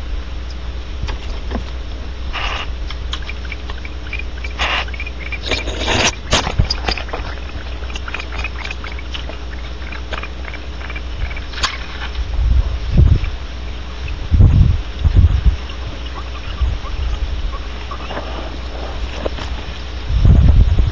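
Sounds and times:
steady low hum: 0.0s - 20.9s
harsh noisy bursts: 2.3s - 12.0s
owls scratching in nest box: 2.3s - 12.1s, 15.6s - 19.8s.

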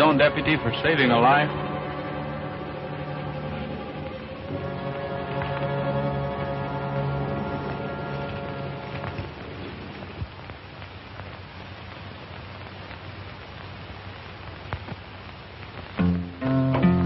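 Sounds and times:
record hiss with faint clicks: 0.0s - 17.0s.

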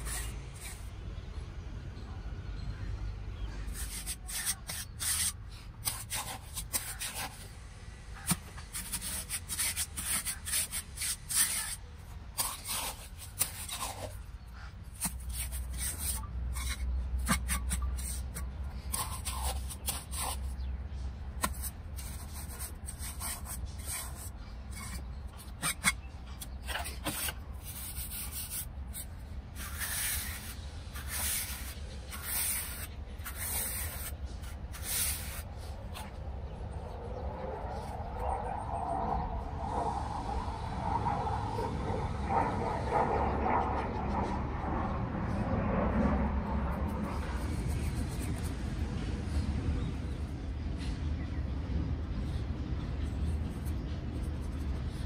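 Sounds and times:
trowel scraping wet cement: 0.0s - 0.9s, 3.6s - 7.5s, 8.2s - 20.6s, 21.4s - 36.1s.

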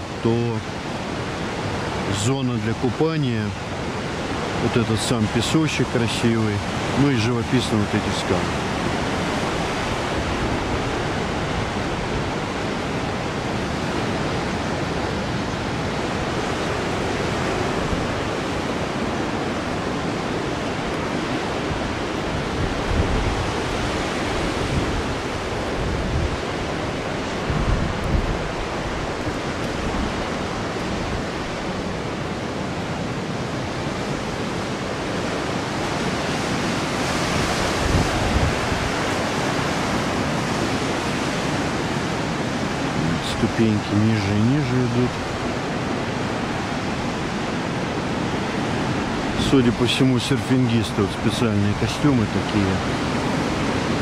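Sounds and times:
wind buffeting microphone: 8.3s - 49.8s.

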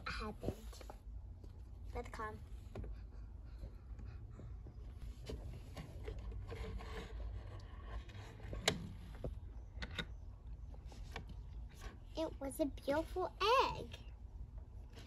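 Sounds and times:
rubbing and scraping of toys: 4.9s - 9.6s.

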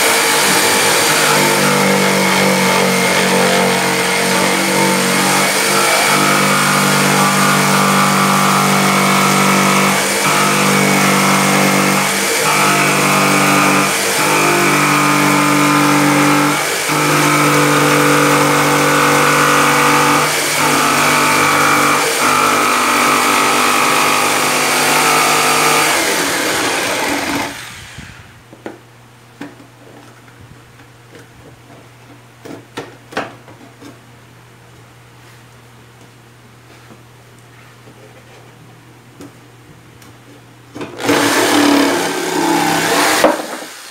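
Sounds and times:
electric jigsaw cutting wood: 0.0s - 28.3s, 40.8s - 43.9s.

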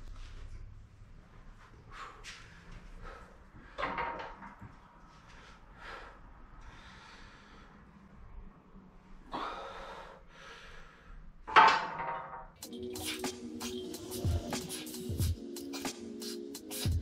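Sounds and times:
forceful breathing: 1.8s - 3.9s, 5.0s - 8.4s, 9.2s - 11.4s
strained exhale: 5.2s - 8.0s, 9.3s - 11.2s.

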